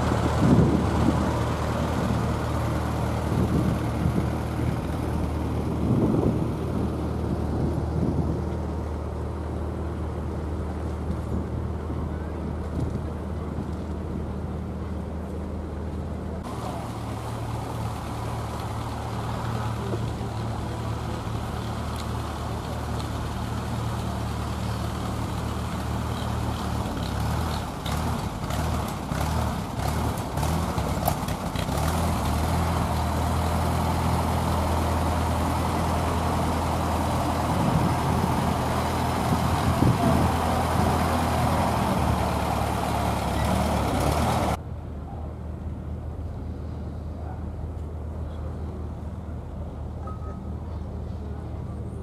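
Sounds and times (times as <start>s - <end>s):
tractor engine idling: 0.0s - 7.7s, 16.4s - 44.6s.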